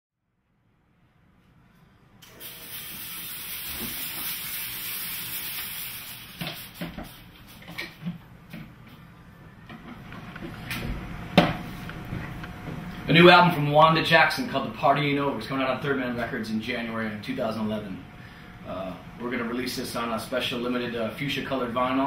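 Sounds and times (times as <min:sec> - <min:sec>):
steady high hiss: 0:02.2 - 0:08.1, 0:12.8 - 0:22.0.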